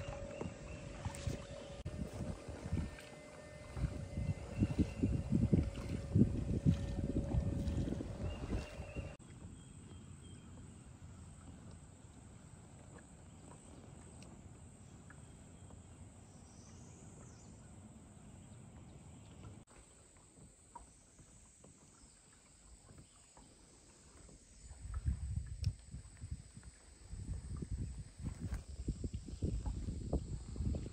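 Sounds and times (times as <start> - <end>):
low rumble: 0.0 - 9.7
faint ticks: 25.5 - 26.3.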